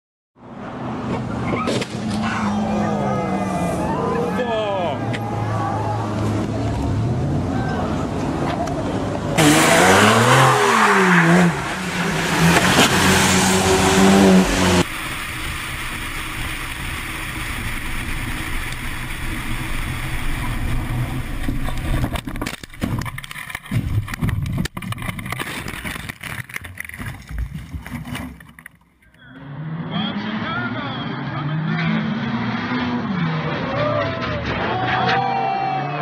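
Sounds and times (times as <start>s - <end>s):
engine and road noise inside car: 0.5s - 24.3s
car engine revving: 9.1s - 24.1s, 29.2s - 35.1s
irregular thuds and knocks: 21.5s - 28.7s.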